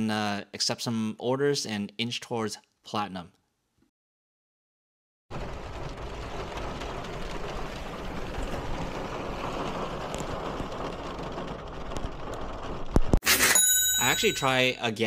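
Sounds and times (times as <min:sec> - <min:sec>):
rain on a car roof: 0:05.3 - 0:13.2.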